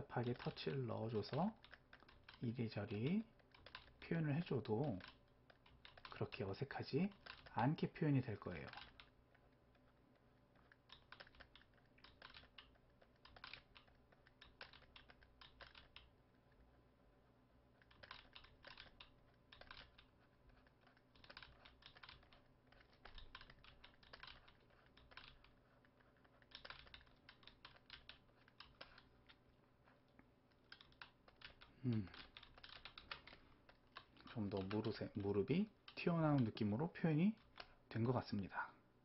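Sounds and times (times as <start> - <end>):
faint computer clicks and taps: 0.0 - 16.7, 17.8 - 38.6.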